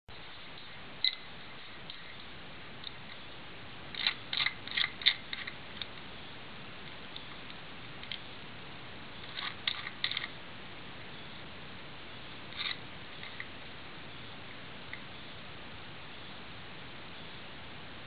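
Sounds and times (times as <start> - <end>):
combination padlock clicking: 3.9 - 5.9.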